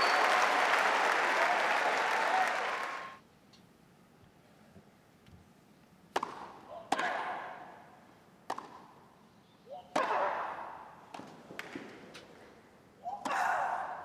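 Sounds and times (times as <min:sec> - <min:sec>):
racket striking tennis ball: 0:06.1 - 0:07.4, 0:08.4 - 0:09.0, 0:09.9 - 0:12.3.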